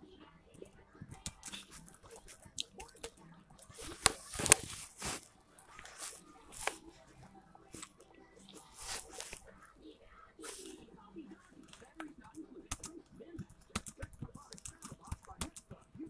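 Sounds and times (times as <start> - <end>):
laptop keyboard typing: 0.5 - 9.7, 10.4 - 16.0.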